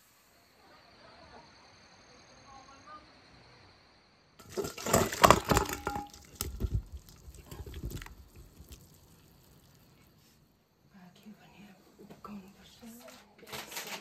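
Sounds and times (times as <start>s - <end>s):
potatoes splashing into water: 4.4s - 10.1s.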